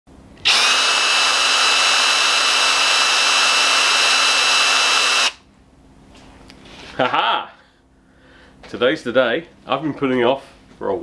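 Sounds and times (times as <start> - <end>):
cordless drill whining: 0.4 - 5.4.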